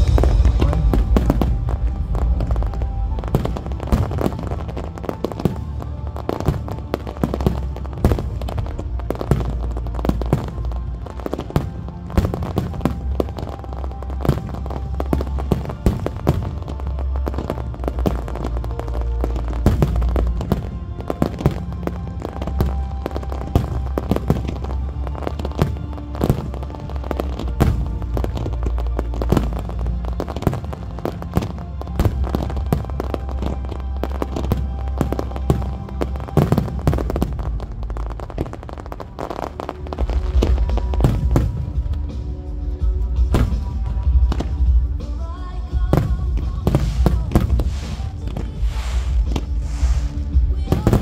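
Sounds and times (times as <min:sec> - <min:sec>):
loud music with deep bass: 0:00.0 - 0:28.4
fireworks popping and cracking: 0:00.0 - 0:42.4, 0:43.0 - 0:45.2, 0:45.8 - 0:51.0.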